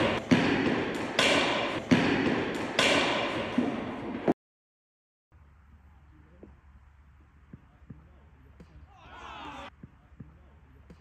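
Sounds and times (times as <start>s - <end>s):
sharp echoing knocks: 0.0s - 4.2s.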